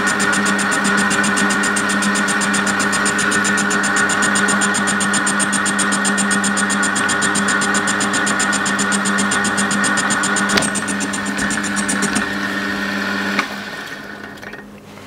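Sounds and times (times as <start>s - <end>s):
rhythmic high ticking: 0.0s - 12.2s
metal lathe motor whine: 0.0s - 14.6s.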